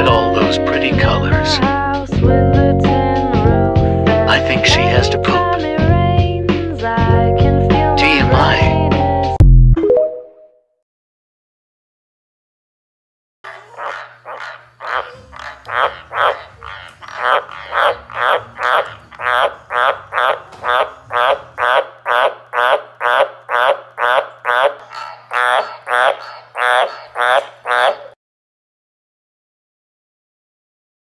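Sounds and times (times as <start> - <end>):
tree frogs croaking: 13.5 - 28.2.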